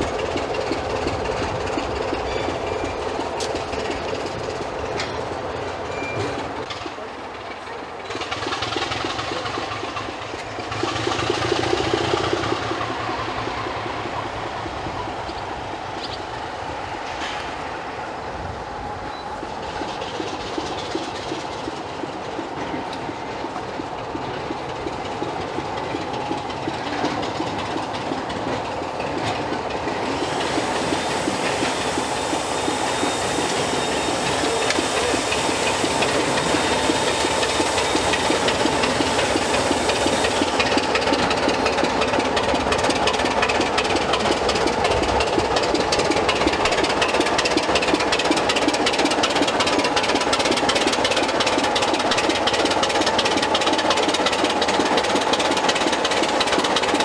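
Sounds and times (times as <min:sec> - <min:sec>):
wheels clicking over rail joints: 0:00.0 - 0:16.4, 0:18.4 - 0:57.0
diesel locomotive engine: 0:00.0 - 0:57.0
hiss: 0:29.8 - 0:57.0.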